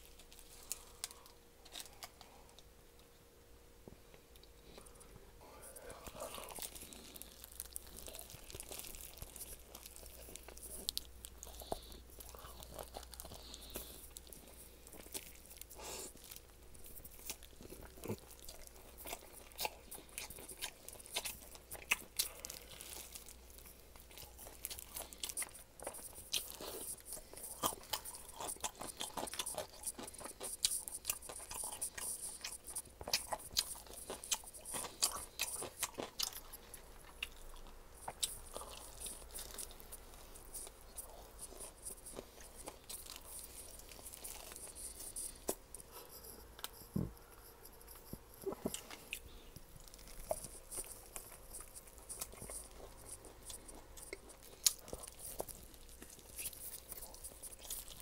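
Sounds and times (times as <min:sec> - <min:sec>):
crunching and chewing: 0:00.0 - 0:03.1, 0:04.1 - 0:58.0.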